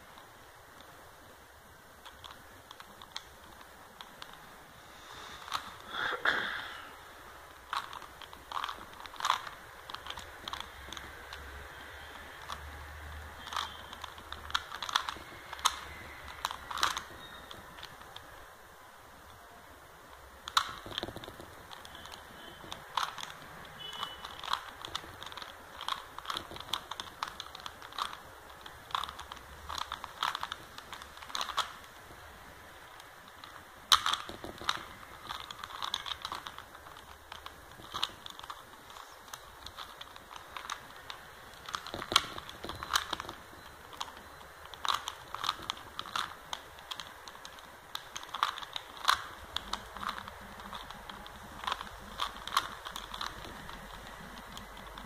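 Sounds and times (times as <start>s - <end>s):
puzzle cube layers clicking: 0.0s - 4.8s, 5.4s - 6.2s, 7.0s - 55.0s.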